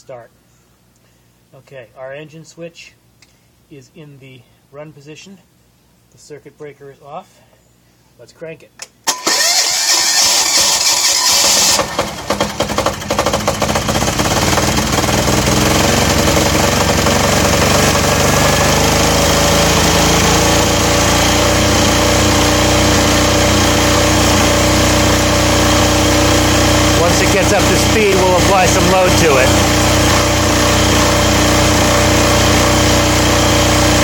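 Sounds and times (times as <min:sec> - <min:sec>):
generator starter cranking: 0:09.0 - 0:34.0
diesel generator engine running: 0:09.3 - 0:34.0.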